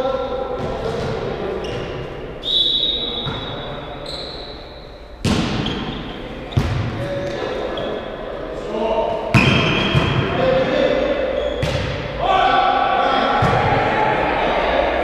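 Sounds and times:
players' voices: 0.0s - 15.0s
volleyball hit with echo: 5.2s - 7.5s, 9.3s - 10.7s, 11.6s - 12.2s, 13.3s - 13.9s.

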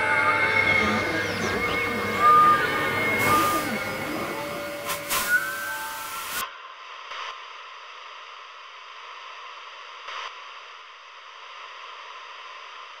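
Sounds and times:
loud sound cutting off: 0.0s - 6.4s
static hiss: 0.0s - 13.0s.

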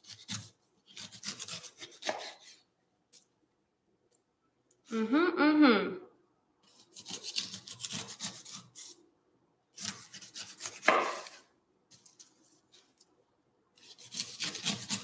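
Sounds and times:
knife cutting pineapple rind: 0.0s - 2.6s, 6.6s - 9.0s, 9.7s - 11.5s, 13.8s - 15.0s
knife tapping cutting board: 10.8s - 11.3s.

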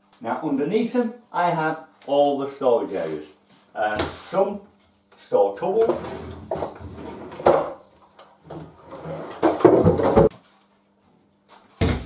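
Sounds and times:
wooden tray sliding and knocking: 8.5s - 10.3s.

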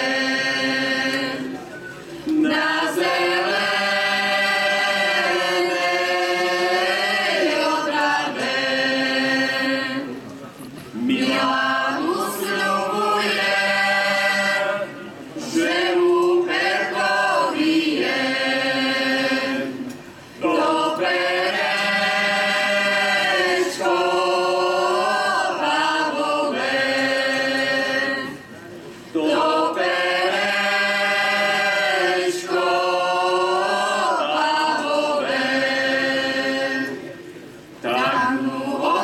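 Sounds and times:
women singing together: 0.0s - 1.6s, 2.2s - 10.2s, 11.0s - 28.5s, 29.1s - 37.1s, 37.8s - 39.0s.

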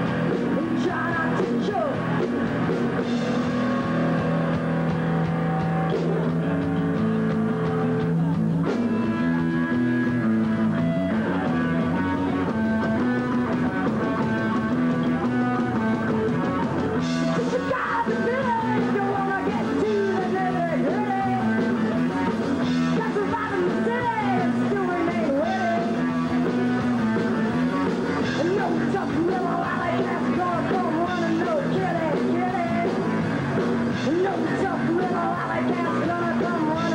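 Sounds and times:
punk rock band playing: 0.0s - 36.9s
woman singing: 0.5s - 2.0s, 17.4s - 21.7s, 22.8s - 26.0s, 28.2s - 33.1s, 33.9s - 36.9s.

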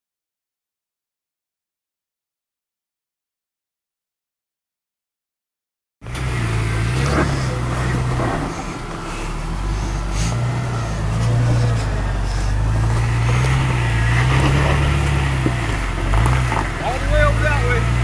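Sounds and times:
car engine at low revs: 6.0s - 18.0s.

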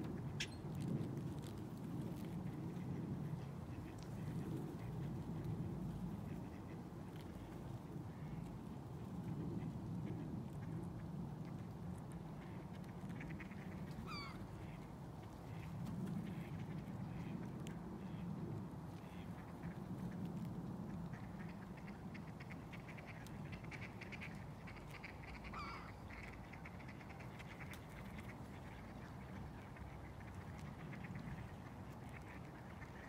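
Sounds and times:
low outdoor rumble: 0.0s - 33.0s
gulls calling: 13.9s - 14.4s.

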